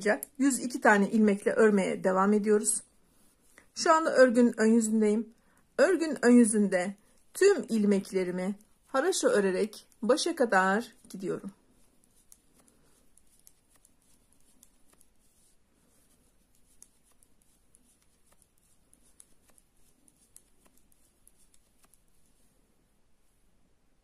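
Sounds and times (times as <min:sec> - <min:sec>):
knitting needles clicking: 0:00.0 - 0:00.4, 0:10.9 - 0:22.3.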